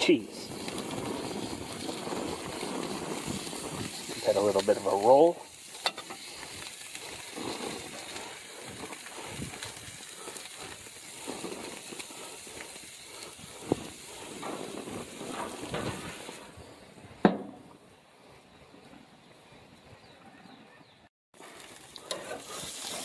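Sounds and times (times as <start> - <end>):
burger patties sizzling: 0.0 - 16.6, 21.4 - 23.0
grill lid clunk: 5.8 - 6.2.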